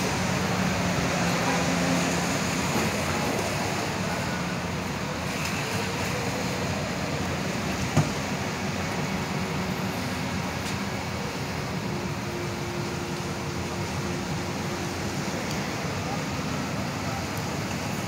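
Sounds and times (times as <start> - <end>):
vehicle engines running: 0.0 - 18.0.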